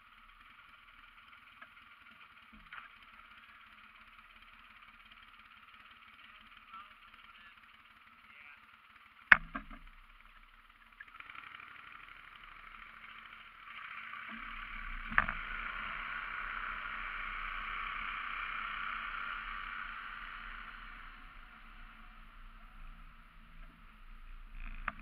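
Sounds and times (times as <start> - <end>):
boat mud motor running: 0.0 - 25.0.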